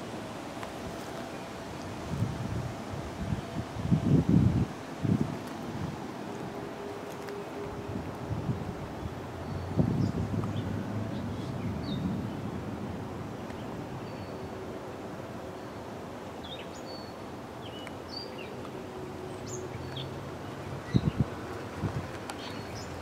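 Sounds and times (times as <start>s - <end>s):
wind rumbling on microphone: 0.0s - 14.3s, 20.5s - 23.0s
birds chirping: 22.3s - 23.0s.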